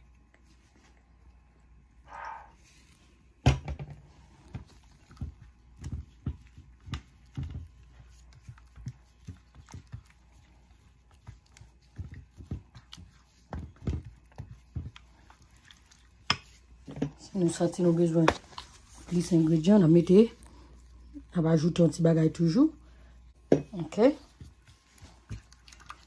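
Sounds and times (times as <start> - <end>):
spatula squelching in marinade: 4.2 - 21.0, 24.0 - 26.0.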